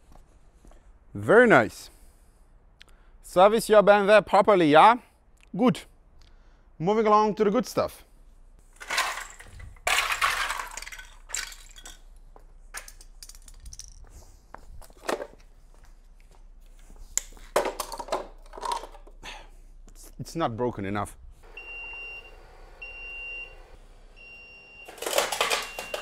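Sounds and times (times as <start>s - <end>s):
plastic pieces clattering: 8.8s - 12.1s, 12.8s - 14.0s, 17.6s - 19.1s, 24.9s - 26.0s.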